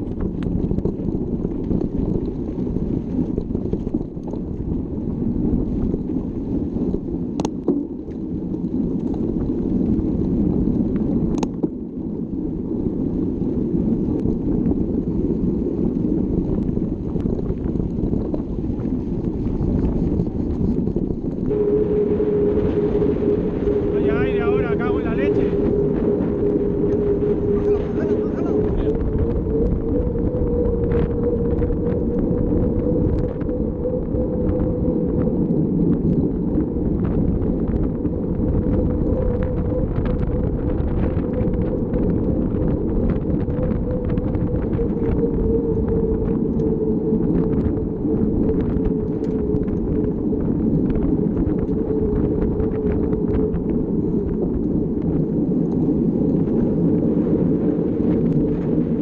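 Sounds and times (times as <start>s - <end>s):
wind buffeting microphone: 0.0s - 59.0s
bike clicks and rattles: 7.4s - 12.1s.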